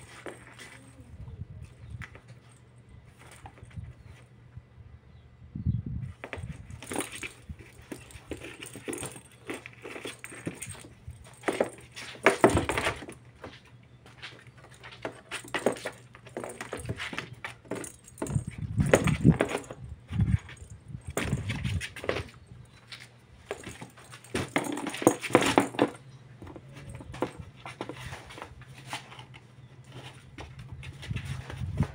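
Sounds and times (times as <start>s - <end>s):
paws scrabbling on cardboard: 0.0s - 1.0s, 6.2s - 31.9s
plastic ball jingling and rattling: 6.2s - 13.6s, 14.2s - 22.8s, 23.4s - 29.3s.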